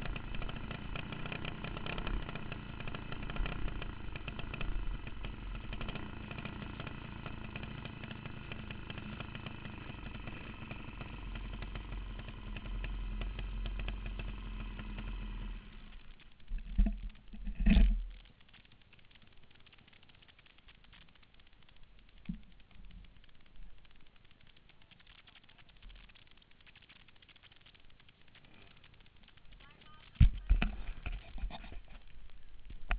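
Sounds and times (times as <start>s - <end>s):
kart engine running: 0.0s - 18.0s, 29.6s - 32.9s.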